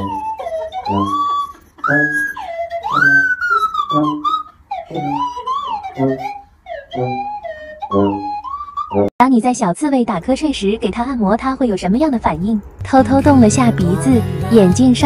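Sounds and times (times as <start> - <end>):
sliding whistle-like lead melody: 0.0 - 9.1.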